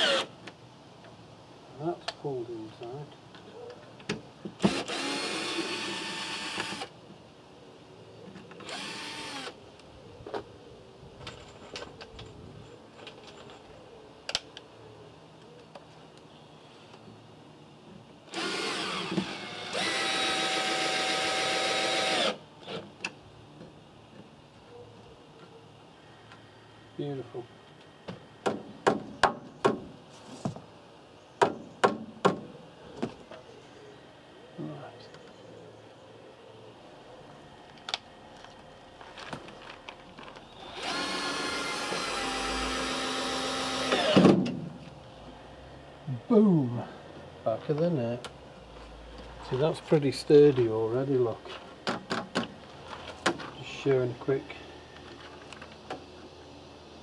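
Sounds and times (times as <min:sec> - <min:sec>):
cordless drill whining: 0:00.0 - 0:00.3, 0:04.6 - 0:06.9, 0:08.6 - 0:09.6, 0:18.3 - 0:22.8, 0:40.6 - 0:44.3
sharp knocks on timber: 0:28.4 - 0:30.6, 0:31.4 - 0:33.2.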